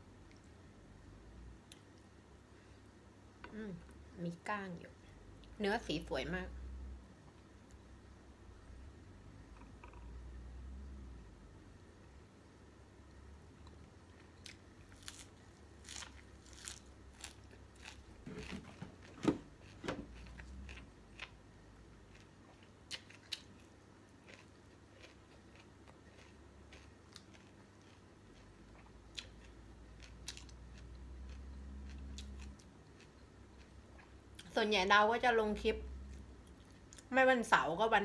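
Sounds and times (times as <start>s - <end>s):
chewing and crunching: 13.6s - 34.5s.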